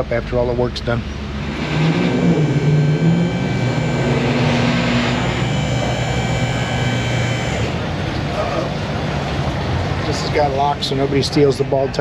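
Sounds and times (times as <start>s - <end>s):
hydraulic motor humming: 1.0s - 8.4s.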